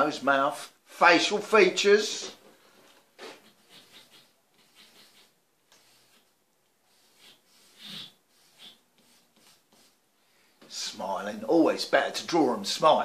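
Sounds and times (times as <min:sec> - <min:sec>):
marker scratching on whiteboard: 0:03.2 - 0:10.0.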